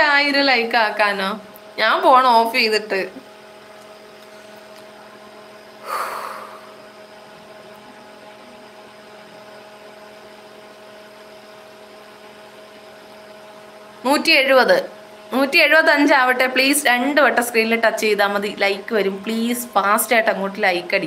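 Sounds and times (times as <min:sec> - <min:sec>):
steady electrical hum: 0:00.0 - 0:21.0
breathy exhale: 0:05.8 - 0:06.9.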